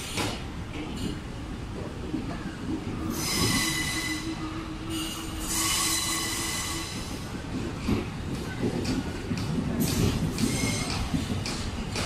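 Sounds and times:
train wheels squealing on rails: 0:02.8 - 0:12.0.

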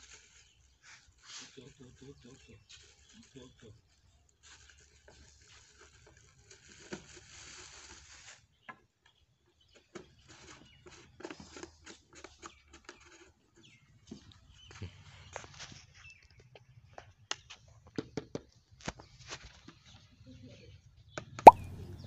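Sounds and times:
plastic cap clicks: 0:21.5 - 0:21.8.

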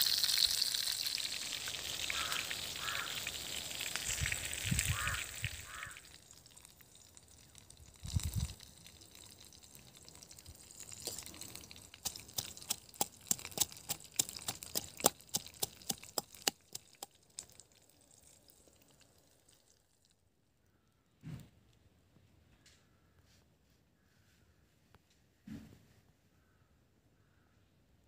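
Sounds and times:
utensil clicking in steel tumbler: 0:10.8 - 0:17.2.

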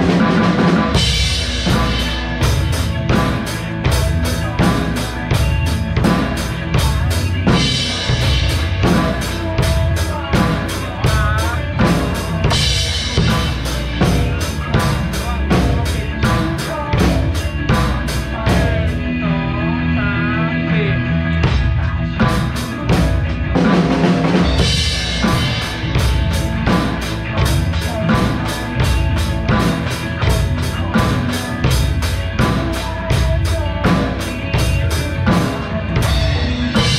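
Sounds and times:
drum kit groove: 0:00.0 - 0:19.3, 0:21.3 - 0:36.9
recorded pop song: 0:00.0 - 0:36.9.

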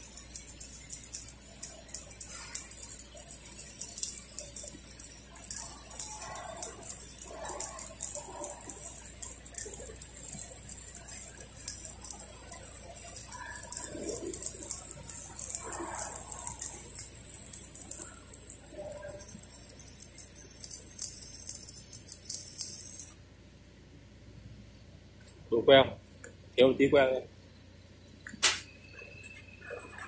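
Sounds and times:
welding arc hissing and crackling: 0:00.0 - 0:23.2.

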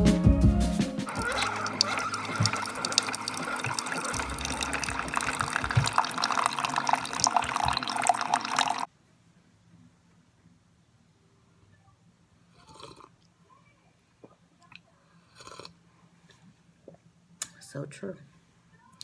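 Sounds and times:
coffee pouring into a mug: 0:01.1 - 0:08.9.

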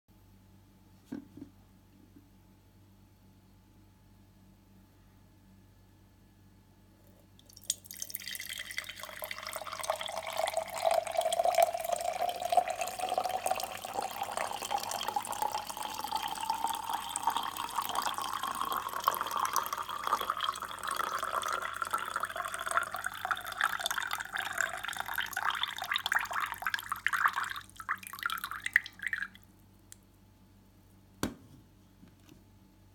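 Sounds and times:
coffee pouring into glass jar: 0:07.4 - 0:29.4
light knock: 0:31.2 - 0:32.4.

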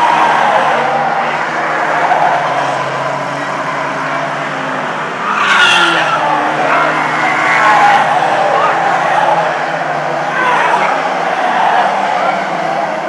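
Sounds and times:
racing car engines: 0:00.0 - 0:13.0
tyre squeal: 0:05.3 - 0:06.3.

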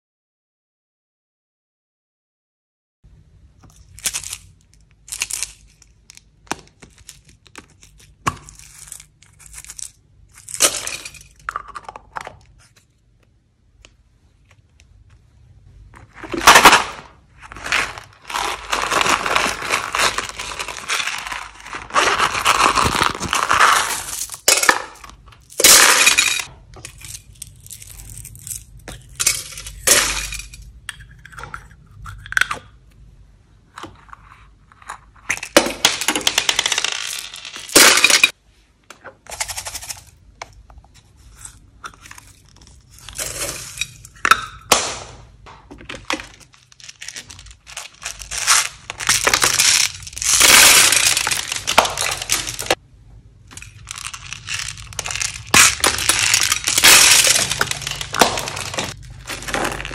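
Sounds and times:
plastic cases clacking: 0:44.7 - 0:52.8, 0:53.6 - 0:59.9.

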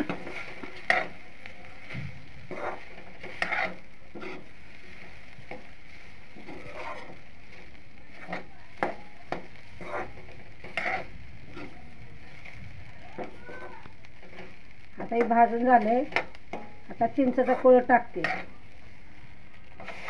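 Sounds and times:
spatula scraping metal pan: 0:00.0 - 0:01.2, 0:02.4 - 0:04.5, 0:06.3 - 0:07.2, 0:08.1 - 0:11.8, 0:15.2 - 0:18.5, 0:19.8 - 0:20.0
low sizzle of frying: 0:00.0 - 0:20.0.

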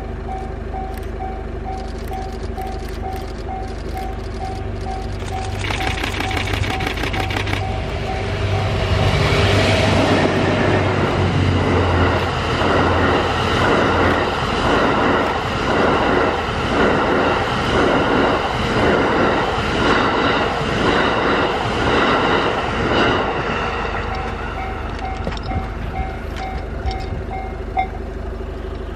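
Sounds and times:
electric locomotive humming: 0:00.0 - 0:28.9.

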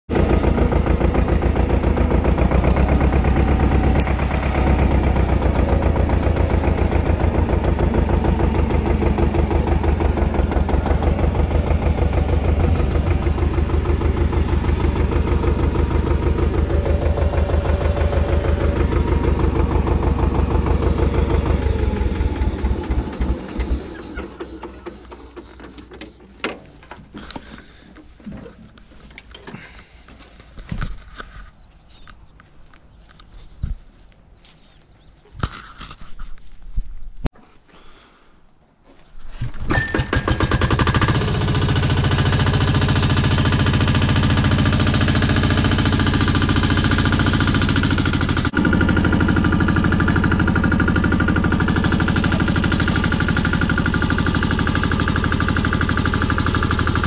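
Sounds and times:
tractor engine running: 0:00.1 - 0:37.4, 0:39.3 - 0:57.0.

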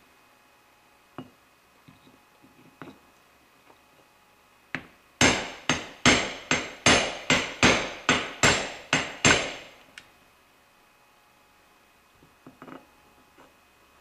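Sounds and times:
hammer striking steel tube: 0:05.2 - 0:09.7.

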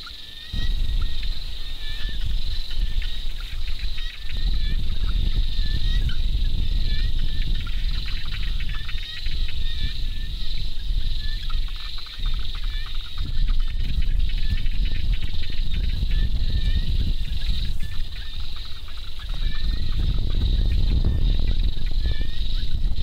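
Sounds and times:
insects trilling: 0:00.0 - 0:23.0
low rumble: 0:00.5 - 0:11.8.

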